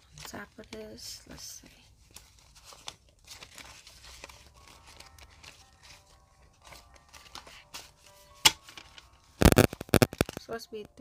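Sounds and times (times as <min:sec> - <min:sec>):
paper banknotes rustling: 0:02.0 - 0:08.0.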